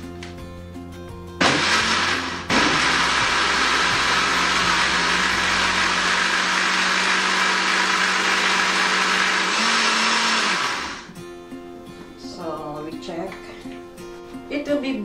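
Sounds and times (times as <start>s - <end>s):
blender running: 1.4s - 11.1s.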